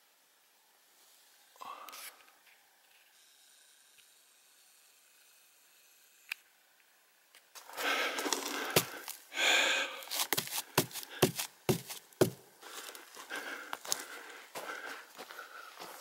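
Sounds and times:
footsteps on forest floor: 7.6 - 16.0
hand rubbing bark: 7.6 - 16.0.

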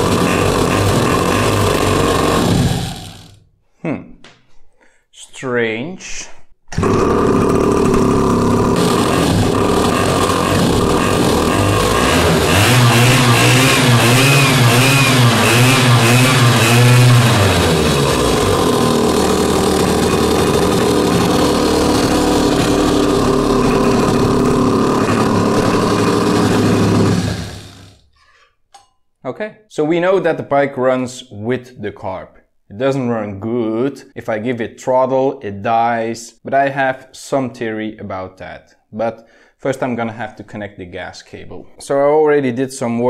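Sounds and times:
small engine running: 0.0 - 3.4, 6.8 - 28.0.

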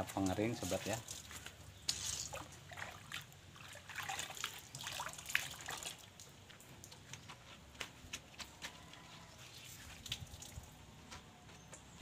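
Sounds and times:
water trickling and dripping: 0.0 - 7.4, 9.2 - 11.0.

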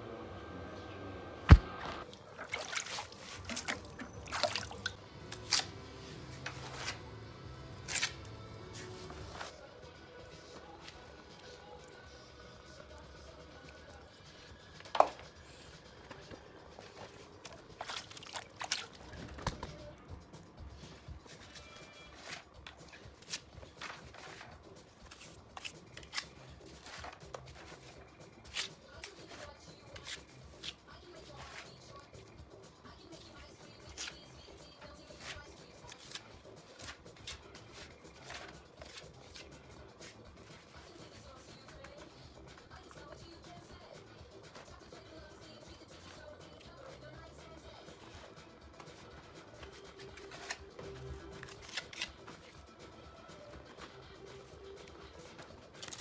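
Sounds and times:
water splashing and dripping: 2.0 - 5.0.

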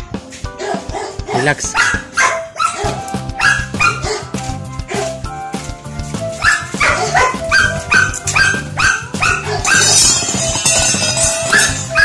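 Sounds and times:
background music: 0.0 - 12.0
dog barking: 0.6 - 5.2, 6.4 - 10.1, 11.5 - 12.0.

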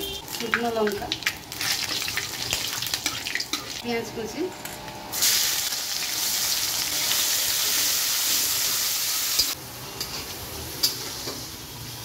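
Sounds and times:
onions sizzling in hot oil: 0.3 - 3.9, 5.1 - 9.6.

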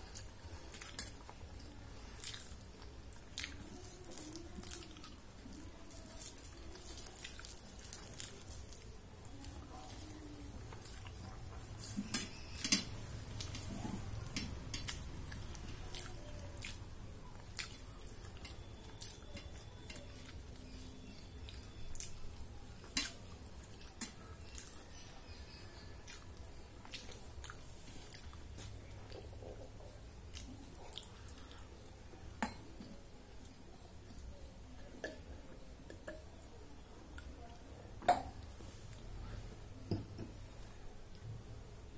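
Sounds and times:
wet chewing and lip smacking: 0.1 - 25.0, 26.0 - 31.6.

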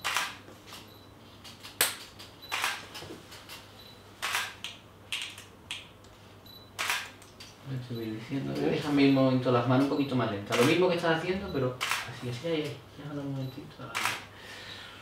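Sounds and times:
camera shutter clicks: 0.0 - 0.4, 1.7 - 2.8, 4.2 - 5.4, 6.8 - 7.2, 10.5 - 10.8, 11.8 - 12.1, 13.9 - 14.2.

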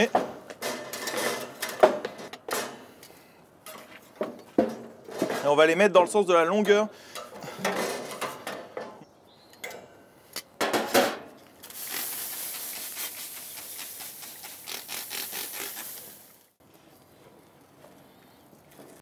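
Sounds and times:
water spray hissing on hot planks: 11.6 - 16.6.

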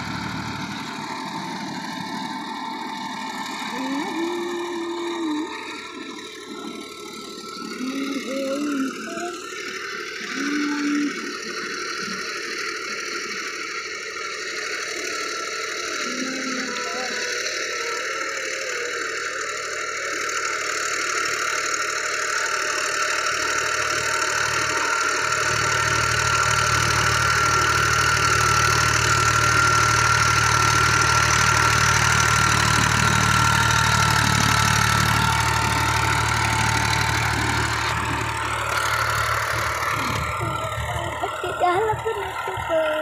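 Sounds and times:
steady high whine: 0.0 - 20.4, 30.4 - 43.0
tractor diesel engine under load: 0.0 - 43.0.

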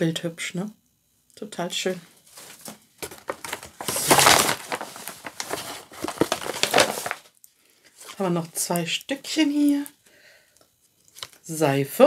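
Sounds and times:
packaging rustling and crinkling: 2.2 - 8.2.

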